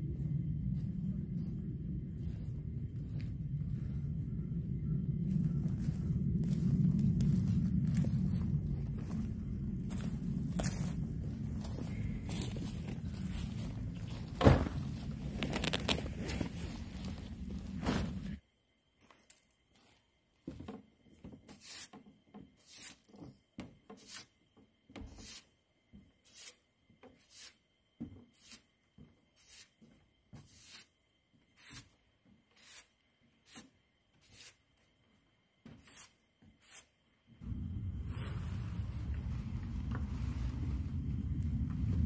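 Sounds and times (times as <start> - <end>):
steady rushing noise: 0.0 - 18.4, 37.4 - 42.0.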